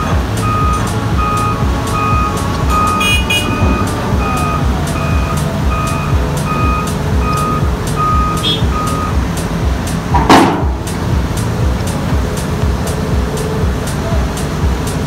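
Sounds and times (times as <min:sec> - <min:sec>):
excavator travel alarm beeping: 0:00.0 - 0:09.6
diesel engine running: 0:00.0 - 0:15.0.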